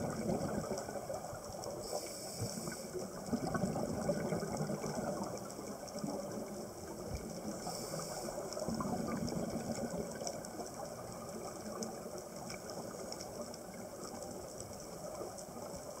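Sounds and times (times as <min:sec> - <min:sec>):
underwater low rush: 0:00.0 - 0:14.1
faint clicks and crackles: 0:00.0 - 0:16.0
high hiss: 0:01.8 - 0:03.0.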